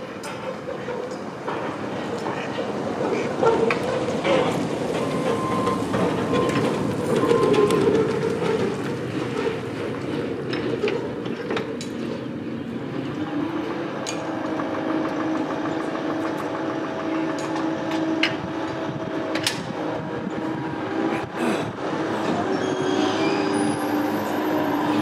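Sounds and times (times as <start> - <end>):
metal clicks and clanks: 14.0 - 19.7.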